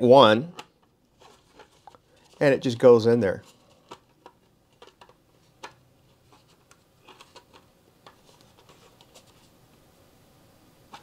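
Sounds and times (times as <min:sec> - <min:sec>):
plastic parts clicking: 0:03.5 - 0:05.8.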